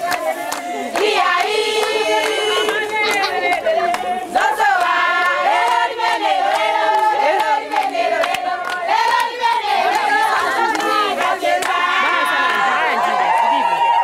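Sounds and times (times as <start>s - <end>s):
group singing: 0.0s - 13.3s
hands clapping: 0.0s - 13.7s.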